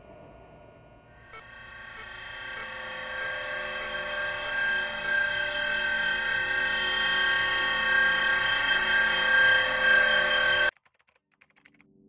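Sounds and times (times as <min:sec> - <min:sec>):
electronic sci-fi machine drone: 0:00.1 - 0:10.7.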